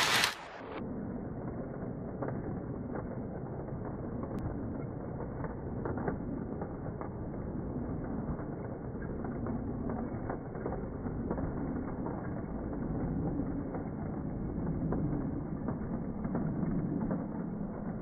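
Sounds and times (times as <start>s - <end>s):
model train motor hum: 0.0s - 0.7s
wheel rumble: 0.0s - 18.0s.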